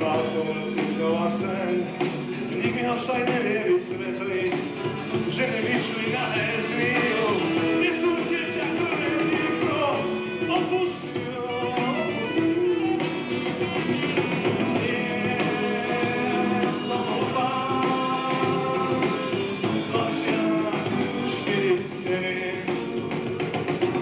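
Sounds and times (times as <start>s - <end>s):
bass guitar: 0.0s - 24.0s
drums: 0.0s - 24.0s
electric guitar: 0.0s - 24.0s
saxophone melody: 9.2s - 19.6s.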